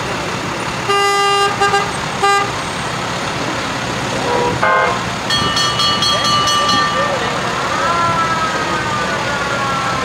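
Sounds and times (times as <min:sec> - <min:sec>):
trucks passing: 0:00.0 - 0:10.0
fire truck horn blasts: 0:00.8 - 0:02.6, 0:04.2 - 0:07.0
horn toots: 0:00.8 - 0:02.6, 0:04.2 - 0:05.1.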